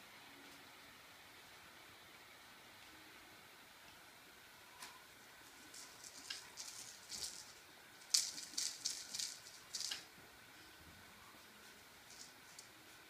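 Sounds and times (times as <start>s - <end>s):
cat toy rattling on tile floor: 5.6s - 10.1s, 12.0s - 12.7s.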